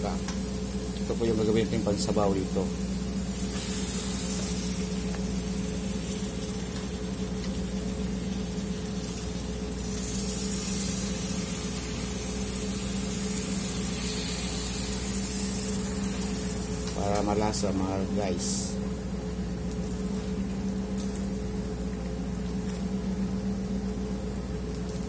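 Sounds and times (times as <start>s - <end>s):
meat sizzling in a pan: 0.0s - 17.0s
low machinery hum: 0.0s - 25.0s.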